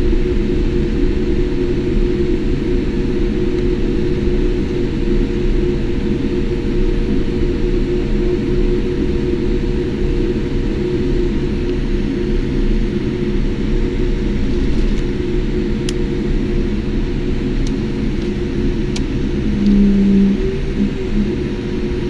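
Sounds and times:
aircraft cabin hum and rumble: 0.0s - 22.0s
brief low tone: 19.4s - 21.4s.

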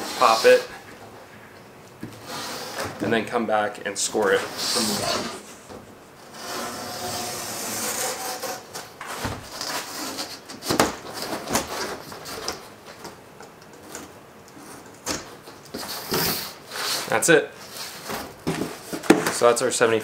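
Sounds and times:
board scraping and rubbing: 0.0s - 0.8s, 2.2s - 3.1s, 4.2s - 12.5s, 15.7s - 19.0s.

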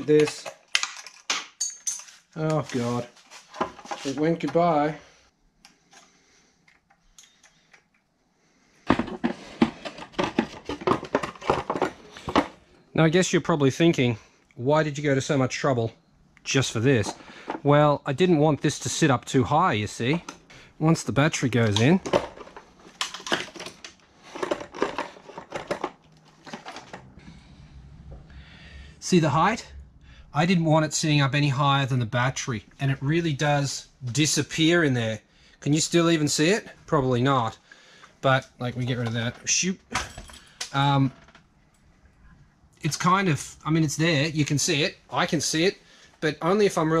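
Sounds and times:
battery case knocking and scraping: 8.8s - 12.6s.

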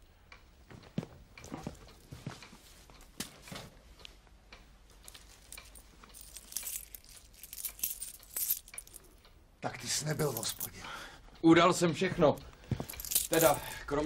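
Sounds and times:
cloth rustling and crinkling: 4.9s - 9.0s.

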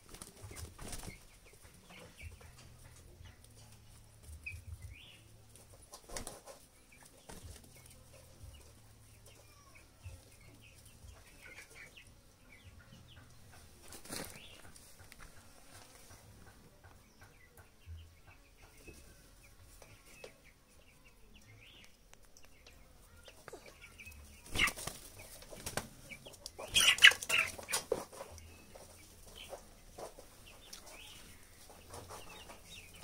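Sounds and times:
hens clucking and peeping: 0.0s - 33.0s
wings flapping hard: 24.4s - 26.0s.

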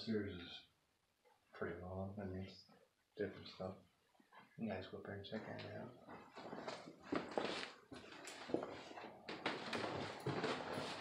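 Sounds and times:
footsteps on wooden stairs: 6.1s - 11.0s.

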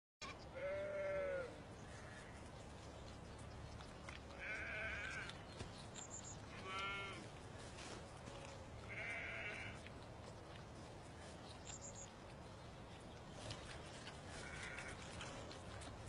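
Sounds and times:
lamb bleating: 0.2s - 2.2s, 4.3s - 5.4s, 6.5s - 7.3s, 8.3s - 9.8s, 14.4s - 15.4s.

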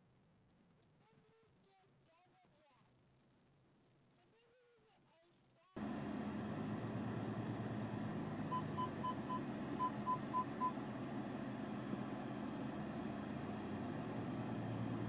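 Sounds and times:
car engine humming: 5.8s - 15.0s
short high warning beeps: 8.5s - 10.8s.

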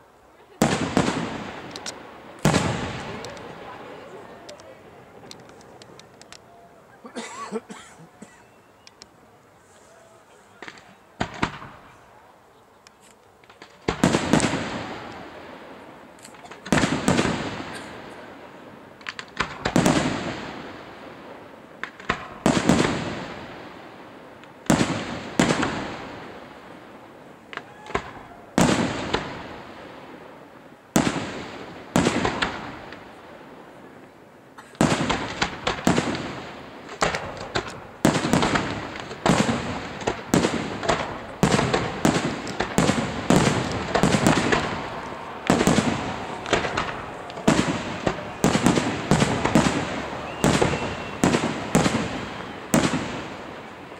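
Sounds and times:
firework shells bursting: 34.8s - 53.8s.

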